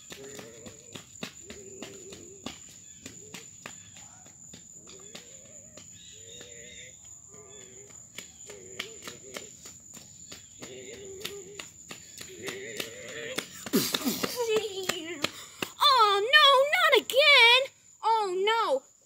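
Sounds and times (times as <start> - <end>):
insect chorus chirring: 0.0 - 19.0.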